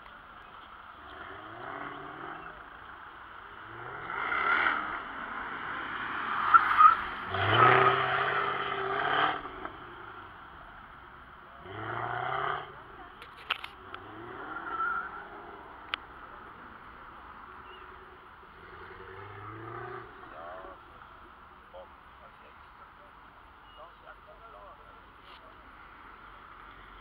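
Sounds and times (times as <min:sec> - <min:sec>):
sports car engine revving: 0:00.9 - 0:10.4, 0:11.4 - 0:21.3
tyre squeals: 0:06.4 - 0:08.2, 0:14.4 - 0:15.3.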